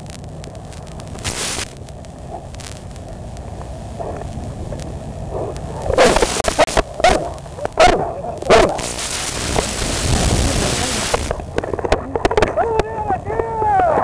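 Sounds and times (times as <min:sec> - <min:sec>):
steady rushing noise: 0:00.0 - 0:14.0
dog barking: 0:07.0 - 0:08.8.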